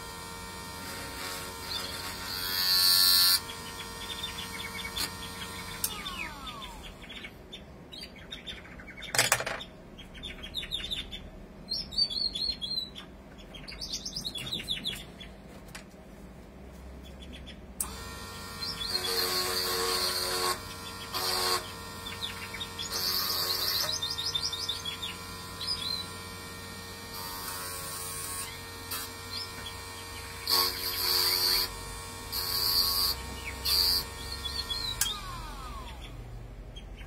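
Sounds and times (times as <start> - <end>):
small electric motor whining: 0.0 - 7.2, 17.8 - 36.4.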